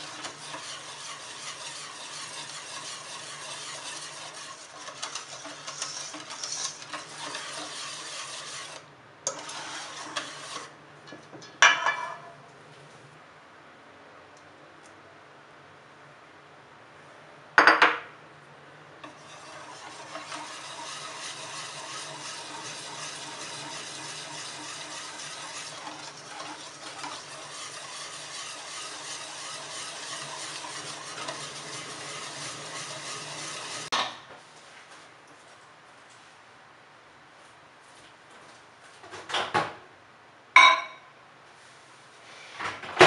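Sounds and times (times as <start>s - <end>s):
whisk scraping metal bowl: 0.0s - 10.8s, 19.0s - 34.0s.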